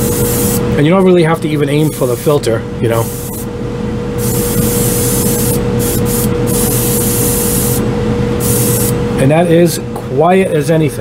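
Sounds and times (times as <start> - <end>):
airbrush spraying hiss: 0.0 - 0.6, 3.0 - 3.5, 4.2 - 7.8, 8.4 - 9.0
steady machine hum: 0.0 - 11.0.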